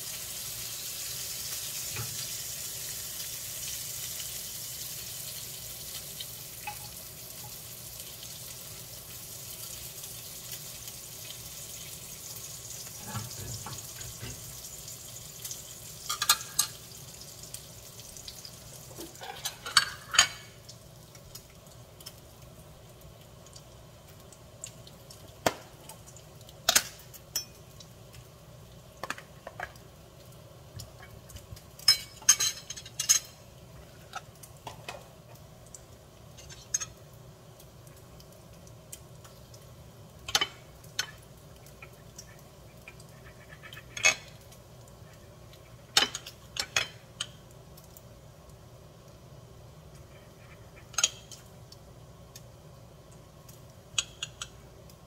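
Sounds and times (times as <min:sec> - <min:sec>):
cutlery scraping a ceramic plate: 0:13.0 - 0:13.7.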